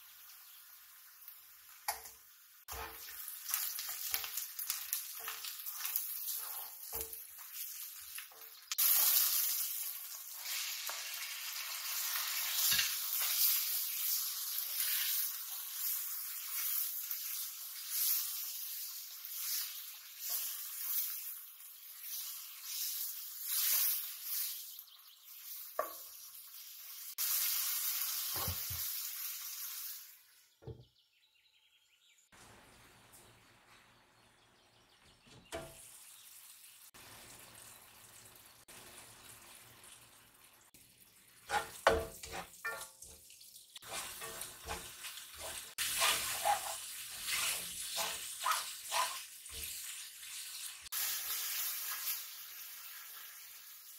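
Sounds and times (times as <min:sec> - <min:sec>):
food sizzling in hot oil: 0:00.0 - 0:30.4, 0:35.5 - 0:53.9
spatula stirring and knocking pan: 0:02.7 - 0:04.4, 0:41.4 - 0:43.2, 0:43.8 - 0:49.8.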